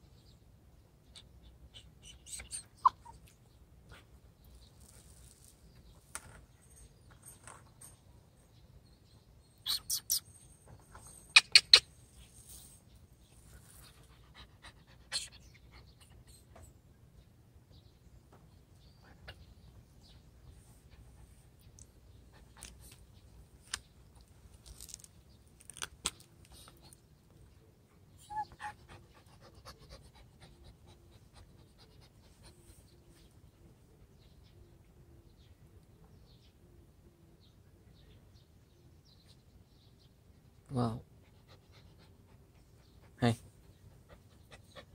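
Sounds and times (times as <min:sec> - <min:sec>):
puppy panting: 0:13.6 - 0:16.5, 0:28.0 - 0:33.2, 0:41.1 - 0:44.9.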